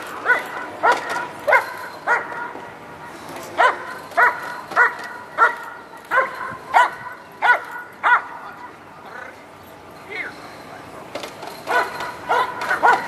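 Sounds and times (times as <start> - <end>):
dog barking: 0.2 - 2.4, 3.6 - 8.4, 11.7 - 13.0.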